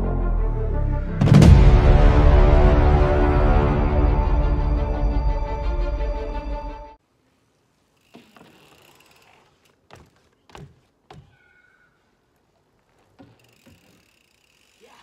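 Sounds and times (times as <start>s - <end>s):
bike tyres rolling: 7.5s - 11.4s, 12.3s - 15.0s
bike bumping on wooden deck: 8.0s - 11.7s, 12.8s - 14.5s.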